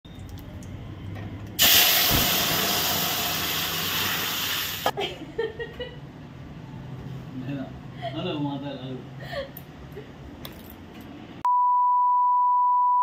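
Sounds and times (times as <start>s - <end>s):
hot oil sizzling: 1.6s - 5.0s.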